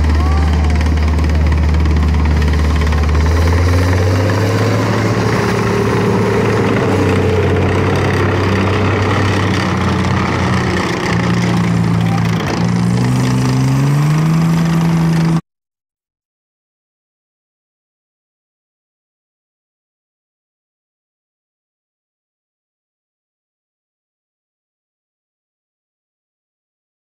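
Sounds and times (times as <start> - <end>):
tracked vehicle diesel engine: 0.0 - 15.4.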